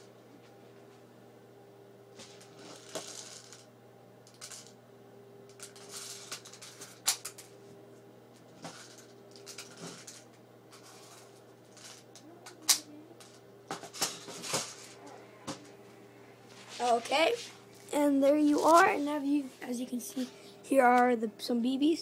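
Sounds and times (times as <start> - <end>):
faint steady hum: 0.0 - 22.0
handling noises: 13.2 - 19.9.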